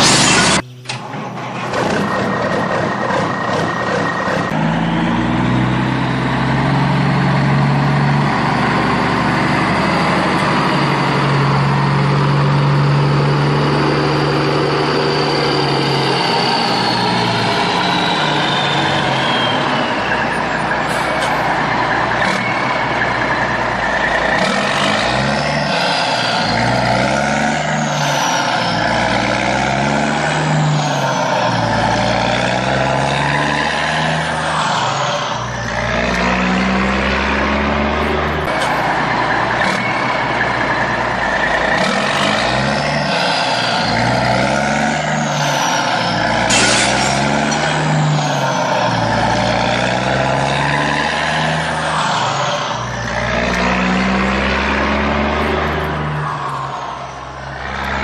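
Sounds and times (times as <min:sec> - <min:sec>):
truck engine revving: 0:00.0 - 0:58.0
high falling whistle glides: 0:13.6 - 0:20.6.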